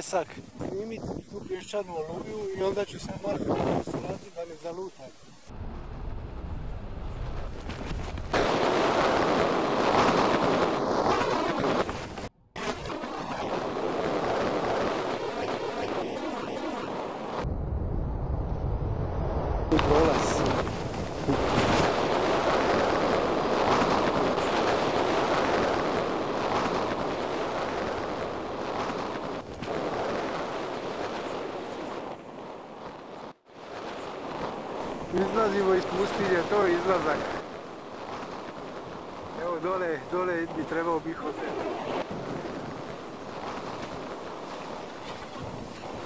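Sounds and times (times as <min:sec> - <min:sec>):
wind buffeting microphone: 0:00.0 - 0:46.0
blowing sand: 0:19.7 - 0:46.0.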